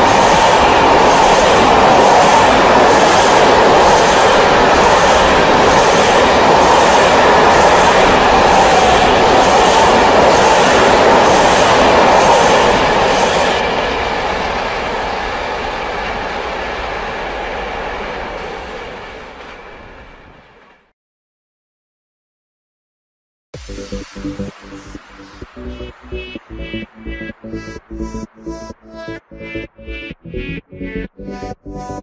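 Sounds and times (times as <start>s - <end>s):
clickety-clack of train wheels: 0.0s - 20.9s
freight train rolling past: 0.0s - 20.9s, 23.6s - 31.0s.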